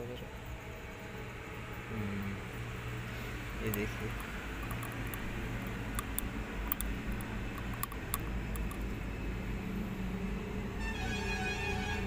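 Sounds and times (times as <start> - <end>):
low workshop hum: 0.0 - 12.0
light sharp clicks: 3.6 - 9.0.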